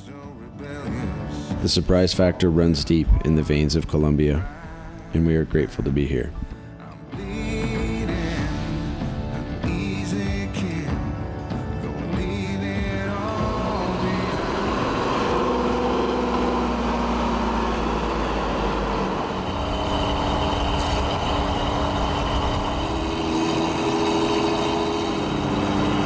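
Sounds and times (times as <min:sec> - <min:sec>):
truck engine from inside cab: 0:13.1 - 0:26.0.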